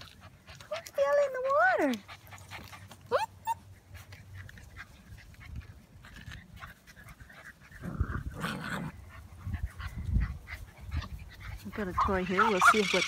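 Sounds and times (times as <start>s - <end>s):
puppies playing and scuffling: 0.0s - 13.0s.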